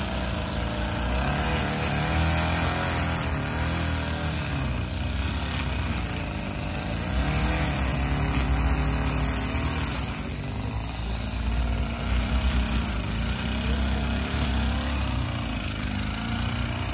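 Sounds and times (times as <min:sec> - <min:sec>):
string trimmer cutting grass: 0:00.0 - 0:16.9.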